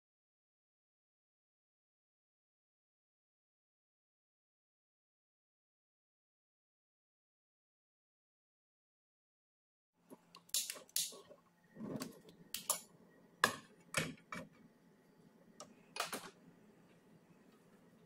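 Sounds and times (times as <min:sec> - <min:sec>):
low steady hum: 0:10.0 - 0:18.0.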